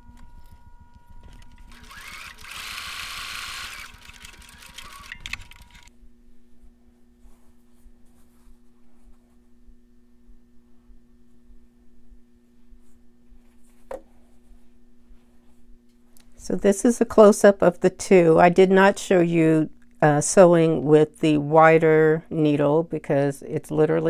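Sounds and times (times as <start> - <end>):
quiet steady hum: 0.0 - 24.0
sewing machine running: 1.2 - 5.9.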